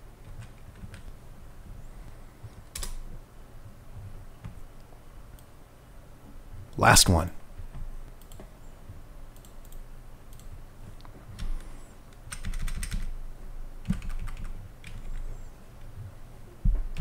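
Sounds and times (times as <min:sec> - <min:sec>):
keyboard typing: 0:02.7 - 0:03.0, 0:12.3 - 0:13.1, 0:13.8 - 0:15.3.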